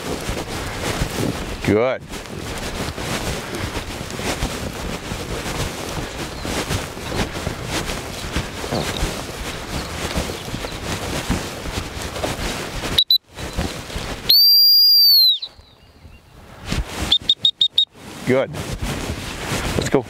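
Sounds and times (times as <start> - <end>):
footsteps through long grass: 0.0 - 20.0
dog-training whistle: 14.3 - 15.6, 17.1 - 17.9.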